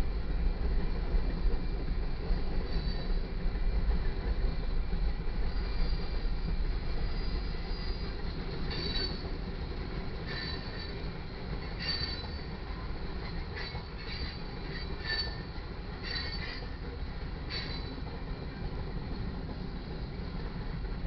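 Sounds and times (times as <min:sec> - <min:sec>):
freight train rumbling: 0:00.0 - 0:21.0
high wheel squeals: 0:08.7 - 0:09.3, 0:10.3 - 0:11.0, 0:11.8 - 0:12.6, 0:13.5 - 0:16.7, 0:17.5 - 0:18.1.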